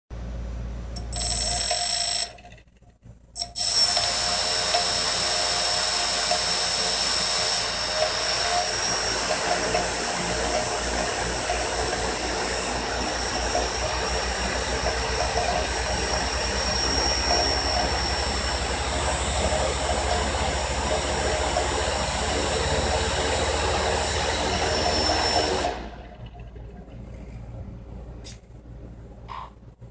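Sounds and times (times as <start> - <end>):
drone motors whining: 3.4 - 26.7.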